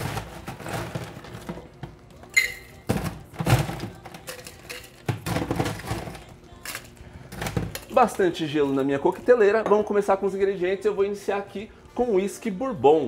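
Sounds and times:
ice cubes clattering into metal tin: 0.0 - 1.8, 2.5 - 8.1.

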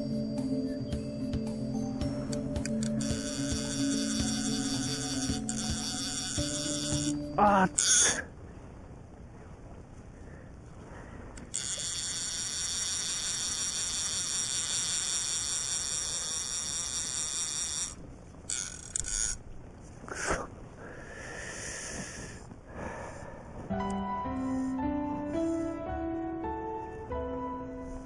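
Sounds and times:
fly reel drag buzzing: 2.1 - 8.2, 11.4 - 19.4.

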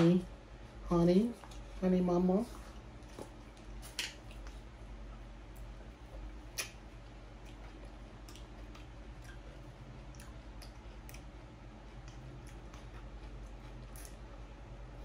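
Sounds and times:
low steady hum: 0.0 - 15.0
light eating clicks and taps: 3.0 - 14.2.

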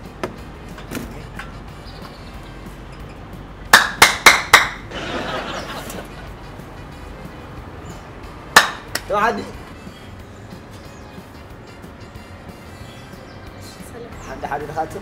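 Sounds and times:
sharp loud knocks: 3.7 - 4.8, 8.5 - 9.1.

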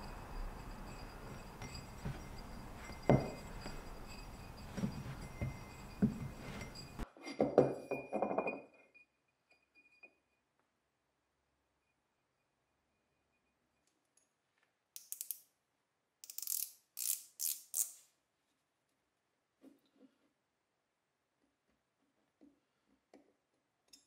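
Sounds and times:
steel shaft clinking in metal hub: 0.0 - 7.1.

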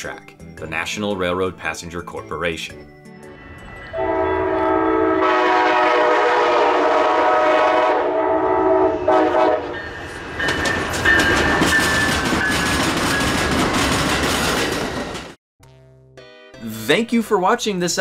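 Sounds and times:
locomotive horn blasts: 3.9 - 9.8
train wheels clattering on rails: 9.9 - 15.4.

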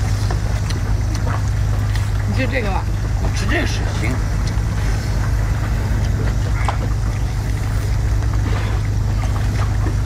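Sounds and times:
low engine-like rumble: 0.0 - 10.0.

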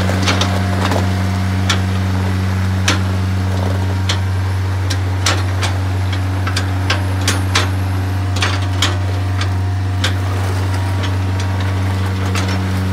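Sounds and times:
excavator diesel engine running: 0.0 - 12.9
sharp metallic clanks: 4.9 - 12.9.

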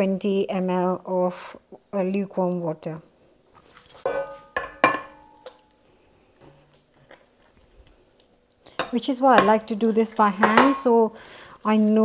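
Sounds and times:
faint handling sounds: 3.2 - 4.6.

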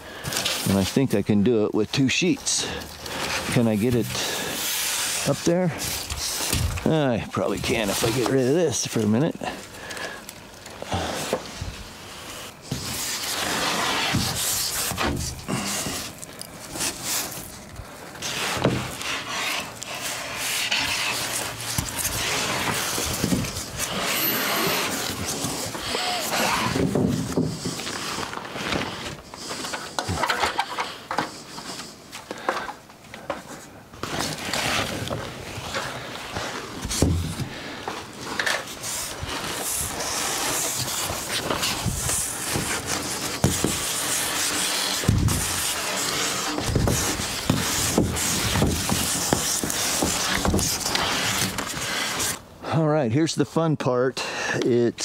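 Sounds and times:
insulation sheets rubbing and scraping: 0.1 - 32.5, 33.2 - 52.5.

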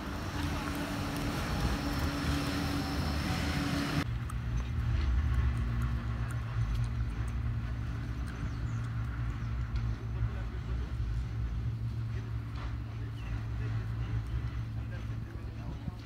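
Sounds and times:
passing vehicle hiss: 0.0 - 4.1
low traffic rumble: 0.0 - 16.0.

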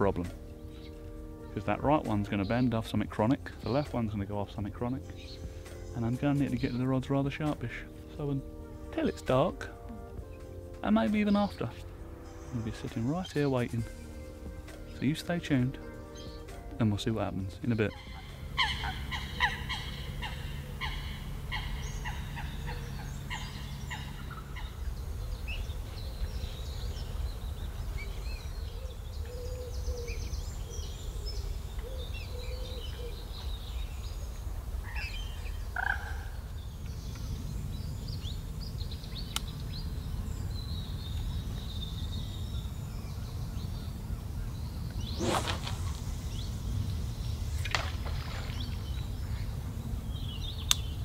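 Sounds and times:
birds calling: 0.0 - 51.0
low background rumble: 18.0 - 29.2, 33.4 - 51.0.

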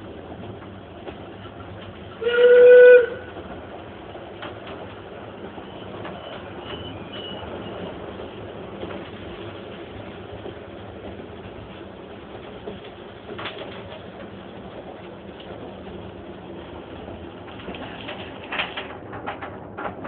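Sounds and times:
train carriage running noise: 0.0 - 20.0
steam locomotive whistle: 2.2 - 3.4.

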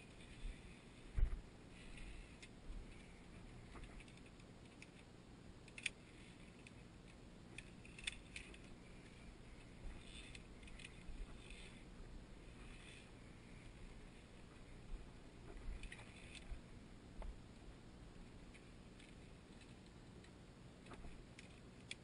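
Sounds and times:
carabiners clicking on steel cable: 1.8 - 11.8, 15.7 - 16.6.

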